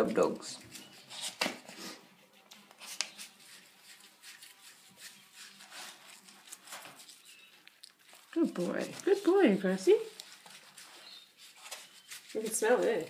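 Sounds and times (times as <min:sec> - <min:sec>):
hands scrubbing wet dog coat: 0:02.7 - 0:13.0.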